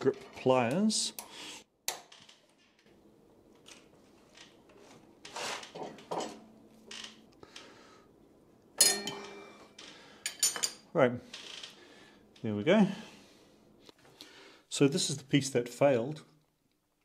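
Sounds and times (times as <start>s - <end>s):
metallic clank ringing: 8.8s - 9.6s.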